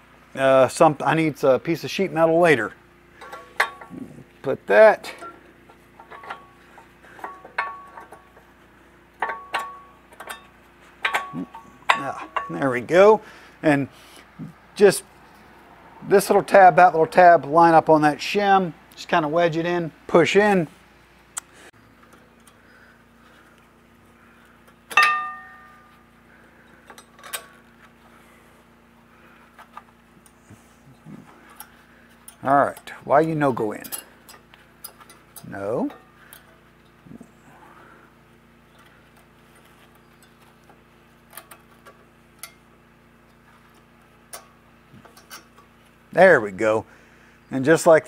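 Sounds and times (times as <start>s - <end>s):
faint steady hum: 0.0s - 48.0s
metallic clink with ringing: 25.0s - 26.0s.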